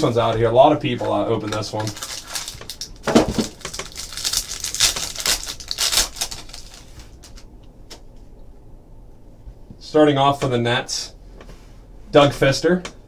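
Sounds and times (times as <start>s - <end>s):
plastic wrapper crinkling and tearing: 1.4s - 7.5s.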